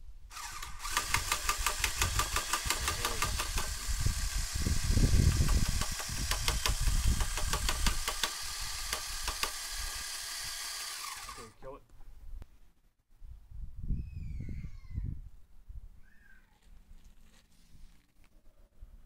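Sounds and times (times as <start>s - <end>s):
drill motor whine: 0.3s - 11.6s
wooden frame rattling and knocking: 5.2s - 9.6s.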